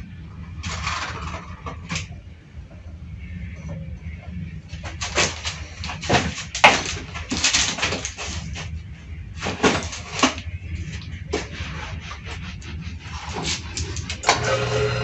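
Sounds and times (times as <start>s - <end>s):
low hum: 0.0s - 15.0s
rustling: 3.4s - 14.3s.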